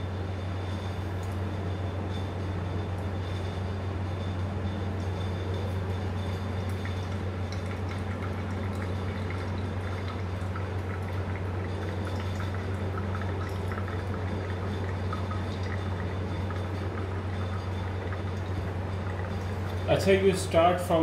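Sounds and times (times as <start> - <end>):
steady low hum: 0.0 - 21.0
water pouring onto coffee grounds: 6.7 - 20.0.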